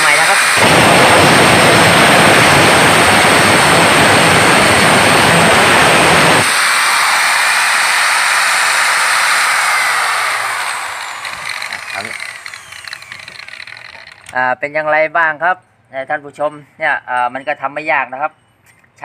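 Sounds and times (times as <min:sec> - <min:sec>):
angle grinder cutting steel: 0:00.0 - 0:05.7, 0:06.4 - 0:14.4.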